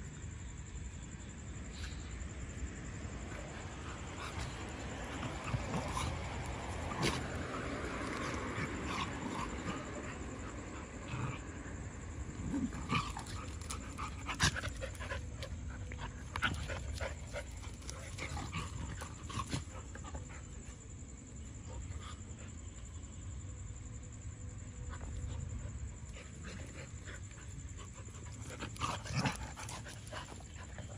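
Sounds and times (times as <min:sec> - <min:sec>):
dogs panting: 0:13.0 - 0:22.8, 0:25.0 - 0:30.9.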